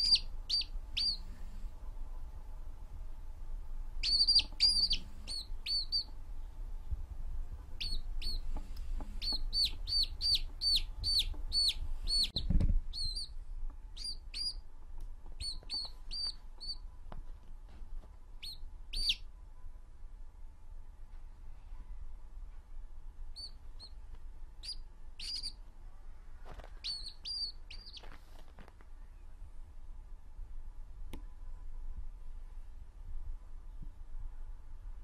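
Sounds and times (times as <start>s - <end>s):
chick peeping: 0.0s - 1.7s, 4.0s - 6.2s, 7.6s - 14.6s, 15.2s - 16.8s, 18.4s - 19.3s, 23.4s - 24.0s, 24.6s - 25.6s, 26.8s - 28.2s
dull thump: 12.4s - 12.9s.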